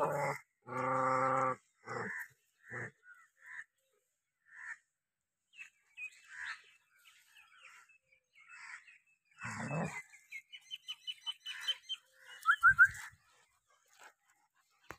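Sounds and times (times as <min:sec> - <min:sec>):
small birds chirping: 0:05.4 - 0:14.9.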